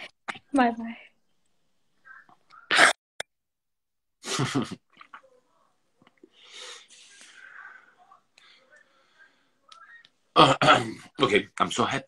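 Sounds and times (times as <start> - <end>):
man coughing: 10.4 - 11.1.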